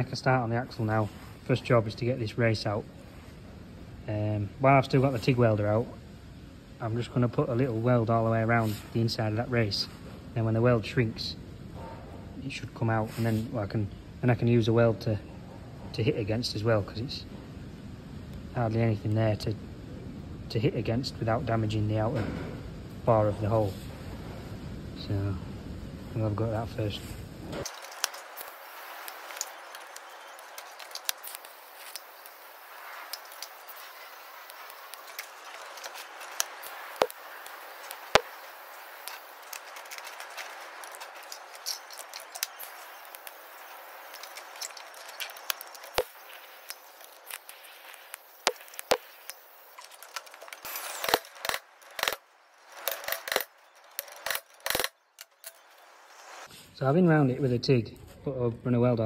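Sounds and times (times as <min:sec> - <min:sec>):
welder arc hissing and crackling: 0:26.9 - 0:52.2
sharp clicks: 0:27.6 - 0:55.7.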